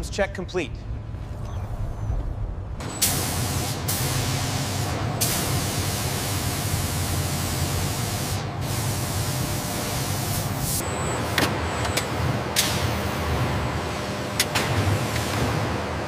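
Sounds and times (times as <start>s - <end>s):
spray gun hissing: 3.0s - 10.8s.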